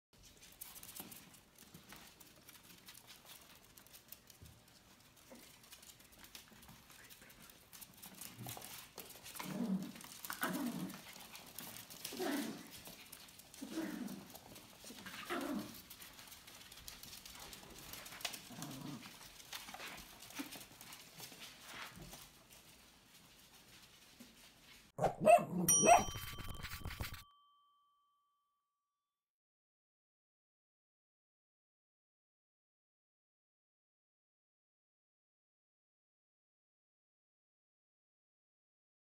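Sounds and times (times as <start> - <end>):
claws skittering on laminate floor: 0.2 - 24.9.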